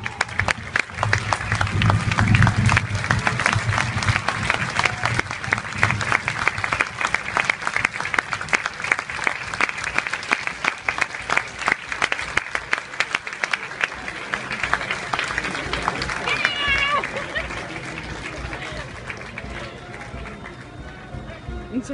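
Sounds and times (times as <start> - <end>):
crowd applauding: 0.0 - 21.9
low rumble: 0.1 - 8.6.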